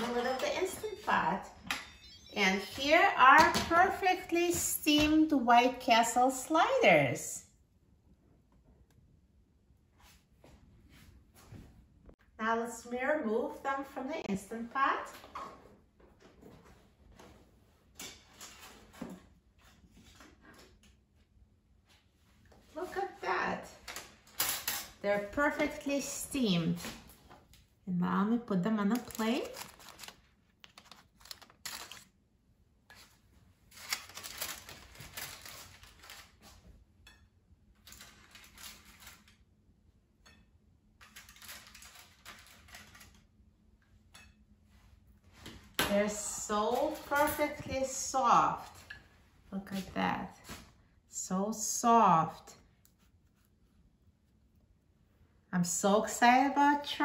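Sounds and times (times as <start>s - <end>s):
rustling foil: 28.8s - 32.2s, 32.9s - 36.6s, 37.8s - 39.4s, 41.0s - 43.2s.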